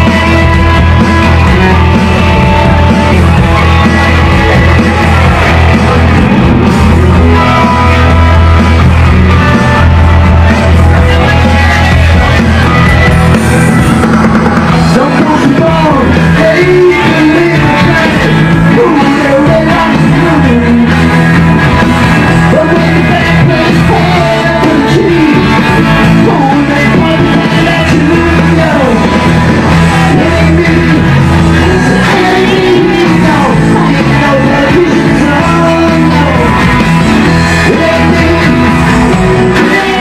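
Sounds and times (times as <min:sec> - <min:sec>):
bass guitar: 0:00.0 - 0:40.0
drums: 0:00.0 - 0:40.0
electric guitar: 0:00.0 - 0:40.0
man singing: 0:14.6 - 0:40.0.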